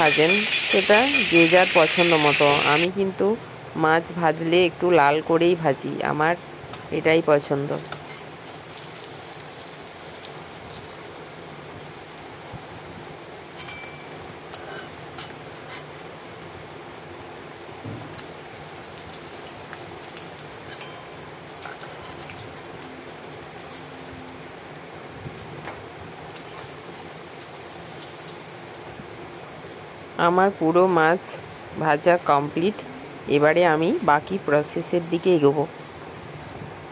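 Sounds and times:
fish sizzling in hot oil: 0:00.0 - 0:02.9, 0:07.8 - 0:17.1, 0:18.1 - 0:29.5.

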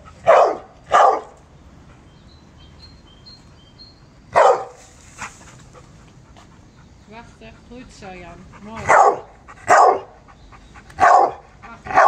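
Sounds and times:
dog barking: 0:00.2 - 0:01.3, 0:04.4 - 0:04.8, 0:08.9 - 0:10.1, 0:11.0 - 0:12.0.

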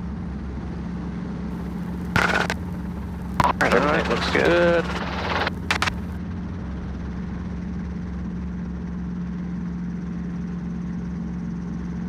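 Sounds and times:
helicopter engine and rotor drone: 0:01.6 - 0:12.0
short clicks: 0:01.8 - 0:06.1.

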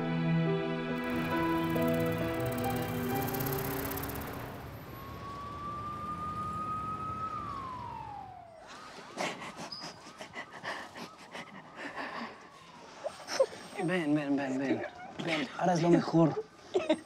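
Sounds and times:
background music: 0:00.0 - 0:05.1
police siren: 0:01.0 - 0:15.2
city traffic: 0:01.0 - 0:17.0.

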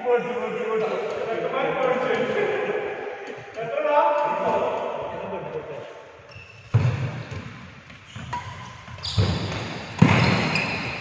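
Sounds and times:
shoes squeaking on court: 0:06.3 - 0:11.0
shuttlecock hits echoing: 0:09.4 - 0:10.5.

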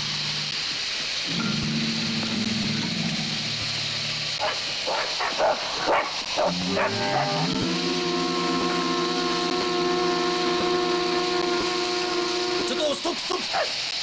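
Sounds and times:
held music chord: 0:01.3 - 0:04.4, 0:06.4 - 0:13.2
dog barking: 0:04.4 - 0:07.4, 0:13.5 - 0:13.7.

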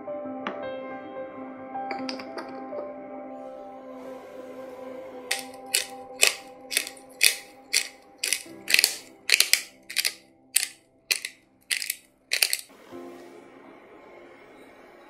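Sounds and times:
soft background music: 0:00.0 - 0:10.7, 0:12.7 - 0:15.0
pepper mill grinding: 0:01.9 - 0:02.5, 0:05.3 - 0:12.7.

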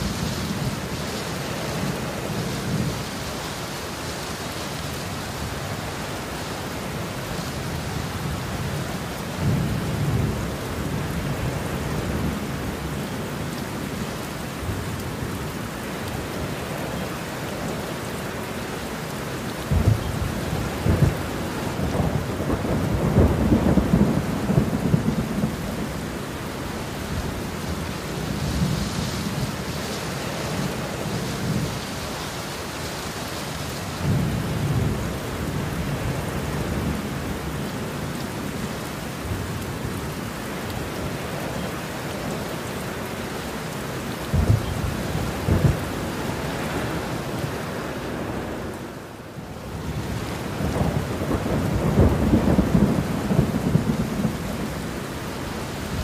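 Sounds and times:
heavy rain: 0:00.0 - 0:56.0
rolling thunder: 0:19.7 - 0:25.9, 0:44.2 - 0:46.1, 0:49.9 - 0:54.9.

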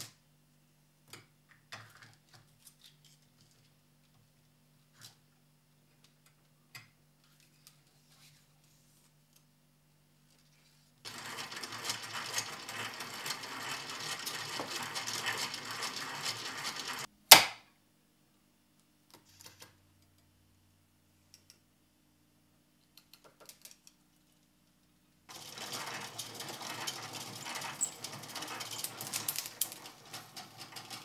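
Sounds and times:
rattling whir of crank gears: 0:11.1 - 0:17.1, 0:25.3 - 0:31.0.

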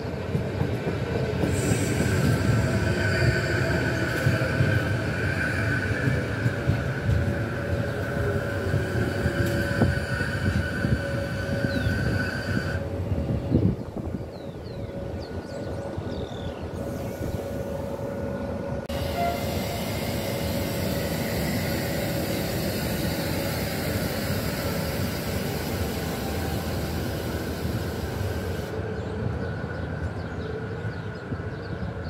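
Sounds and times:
train wheels rumbling on rails: 0:00.0 - 0:32.0.

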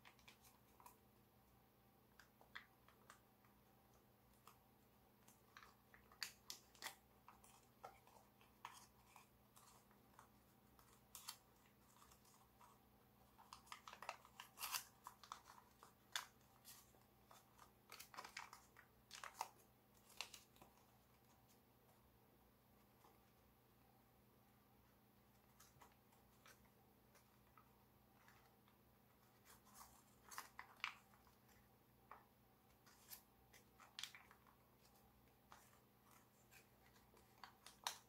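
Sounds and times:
foil paper crinkling: 0:13.3 - 0:20.7.

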